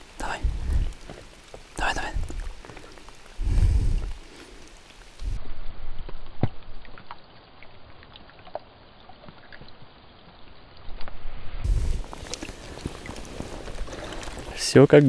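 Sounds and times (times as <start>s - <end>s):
rain falling on a river: 0.0s - 11.1s, 11.7s - 15.0s
low rumbling water slosh: 10.7s - 14.6s.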